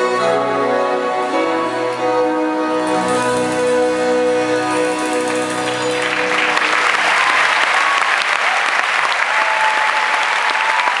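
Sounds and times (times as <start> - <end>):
concert audience applauding: 5.0 - 11.0.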